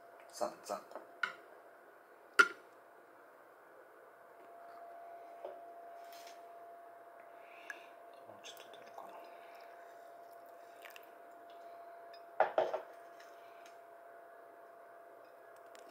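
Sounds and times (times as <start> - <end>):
faint steady whine: 0.0 - 15.9
small drips and clicks: 7.2 - 11.6
coffee bubbling in a filter: 7.7 - 11.6.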